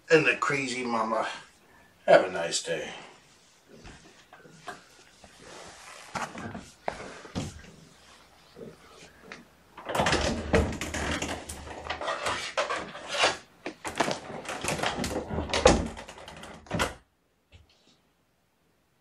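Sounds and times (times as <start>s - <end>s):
rustling: 1.4s - 16.6s
irregular clattering and knocking: 9.2s - 17.0s.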